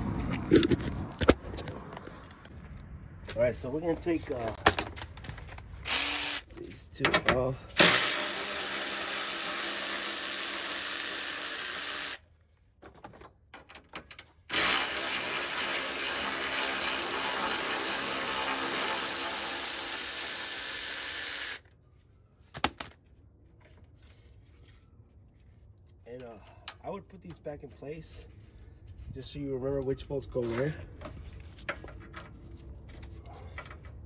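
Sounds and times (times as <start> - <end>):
cordless power tool running: 7.8 - 12.2, 14.5 - 21.6.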